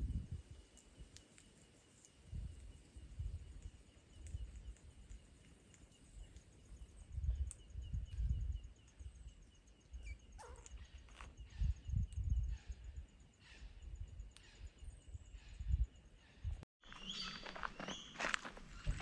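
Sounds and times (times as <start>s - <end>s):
wind on microphone: 0.0s - 1.2s, 2.2s - 5.2s, 6.2s - 16.6s.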